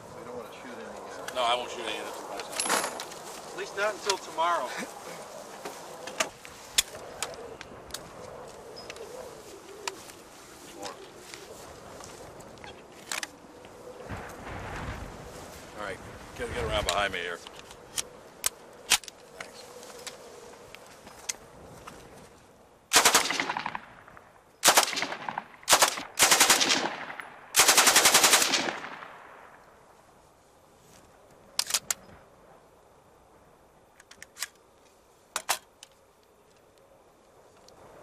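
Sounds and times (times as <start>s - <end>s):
machine gun bursts: 22.9s - 23.7s, 24.6s - 26.9s, 27.6s - 28.8s.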